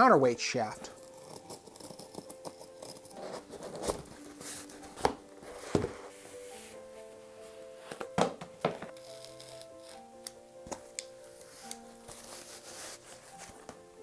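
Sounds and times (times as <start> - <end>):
soft background music: 0.0 - 14.0
cardboard ripping: 8.8 - 10.0.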